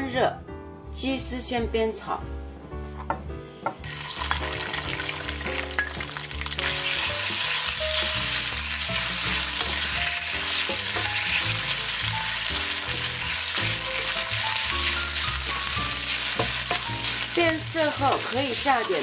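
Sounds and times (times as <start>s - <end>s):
chicken sizzling in hot oil: 3.8s - 19.0s
spatula knocking pan: 9.3s - 11.5s, 14.6s - 17.2s.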